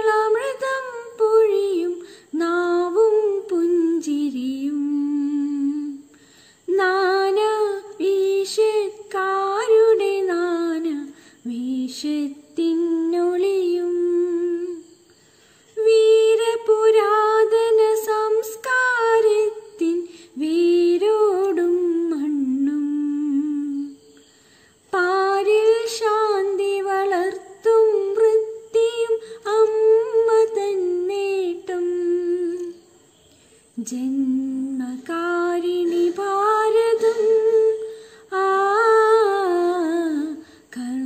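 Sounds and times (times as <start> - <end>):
woman humming: 35.7 - 38.0.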